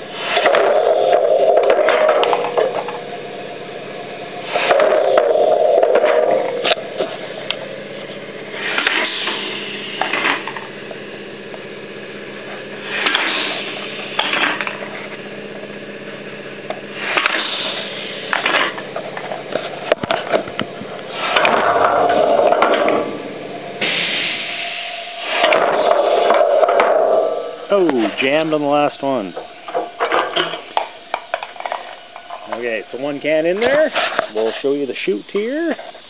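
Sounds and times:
pneumatic air hiss: 0.0 - 0.8, 4.4 - 4.8, 8.5 - 10.5, 12.8 - 14.6, 16.9 - 18.8, 21.0 - 21.5, 23.8 - 27.7
steady machine hum: 0.0 - 36.0
cans clanking as crushed: 0.4 - 3.0, 29.3 - 32.7.

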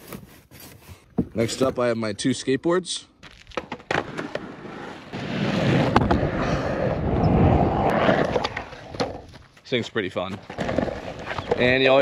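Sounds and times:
skateboard wheels rolling on asphalt: 3.2 - 12.0.

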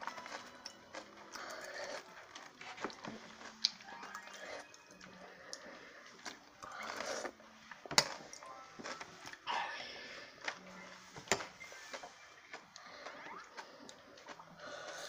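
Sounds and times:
chewing: 0.0 - 15.0.

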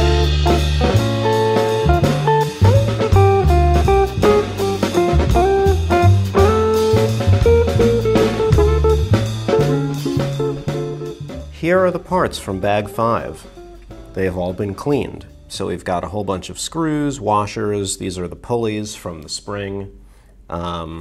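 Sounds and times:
plucked guitar melody: 0.0 - 15.5
walking bass line: 0.0 - 15.5
drum kit: 0.0 - 15.6.

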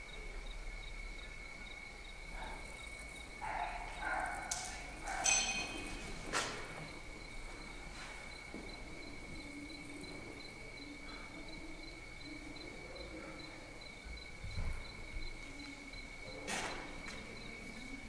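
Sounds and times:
crickets chirping: 0.0 - 18.0.

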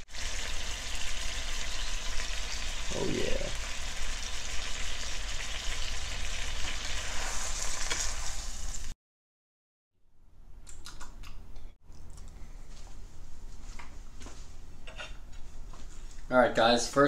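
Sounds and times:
fish sizzling in hot oil: 0.0 - 9.0.

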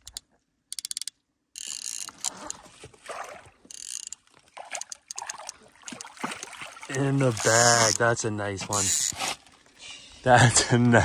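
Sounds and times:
fishing reel ratchet buzzing: 0.0 - 2.6, 3.7 - 4.2, 4.8 - 5.5, 7.4 - 8.0, 8.7 - 9.2
fish splashing: 1.9 - 9.8.

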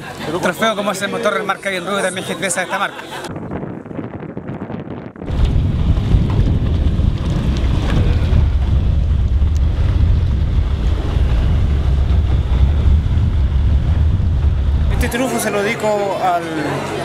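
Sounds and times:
wind rumble on microphone: 3.3 - 16.1.

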